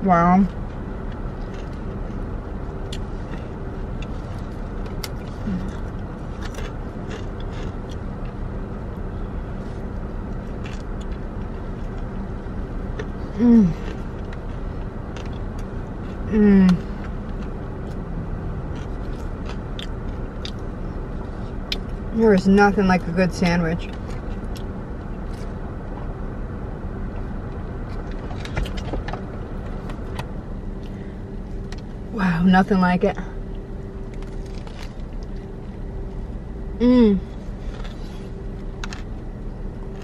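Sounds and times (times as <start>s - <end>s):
car idling hum: 0.0s - 40.0s
person chewing: 1.1s - 2.2s, 2.8s - 8.4s, 10.3s - 12.1s, 12.9s - 22.0s
person humming mmm: 13.3s - 13.9s, 16.3s - 16.9s, 36.8s - 37.4s.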